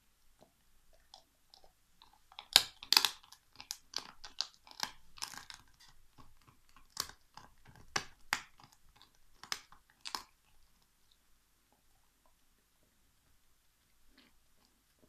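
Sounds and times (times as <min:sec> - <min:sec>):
dog crunching bone: 0:00.4 - 0:11.2
dog gnawing: 0:00.4 - 0:12.0.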